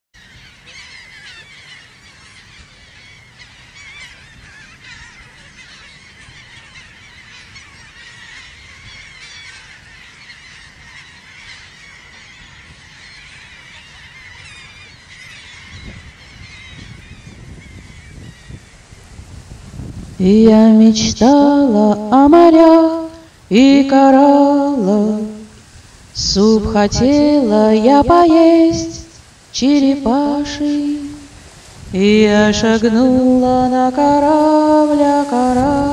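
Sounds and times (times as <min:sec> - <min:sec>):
seabirds calling: 0:00.2 - 0:35.9
low wind rumble: 0:15.6 - 0:35.9.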